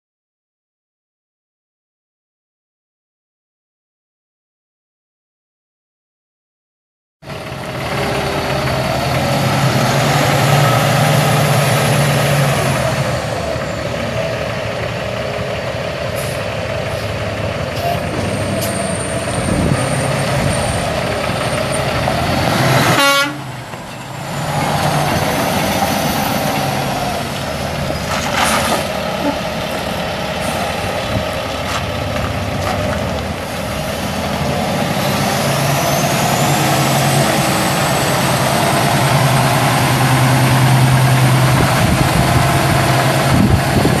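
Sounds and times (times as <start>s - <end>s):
truck diesel engine running: 7.2s - 44.0s
tires on gravel: 7.3s - 44.0s.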